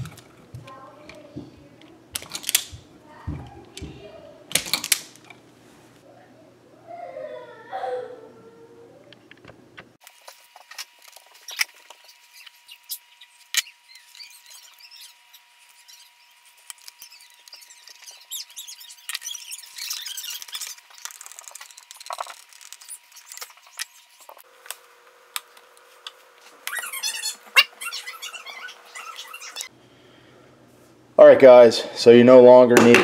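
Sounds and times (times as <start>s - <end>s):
faint high squeaks and scraping: 11.3s - 24.5s, 26.5s - 29.7s.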